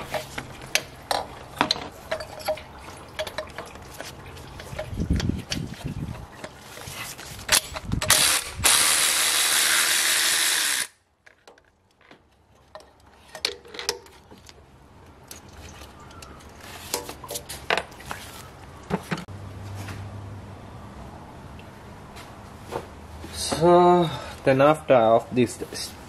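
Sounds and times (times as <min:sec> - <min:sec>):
electric ratchet spinning: 0:08.1 - 0:11.0.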